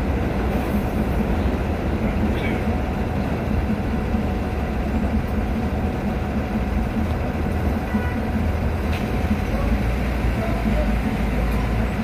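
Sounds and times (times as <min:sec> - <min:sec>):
vehicle engines rumbling: 0:00.0 - 0:12.0.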